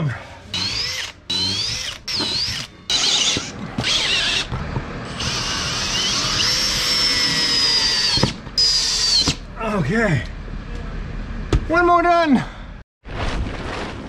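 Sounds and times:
drill motor whining: 0.5 - 9.4.

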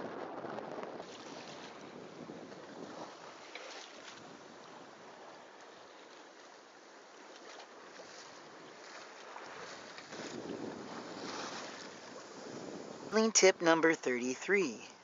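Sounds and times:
wind on microphone: 0.0 - 5.7, 8.0 - 13.6
water rushing along hull: 0.0 - 15.0.

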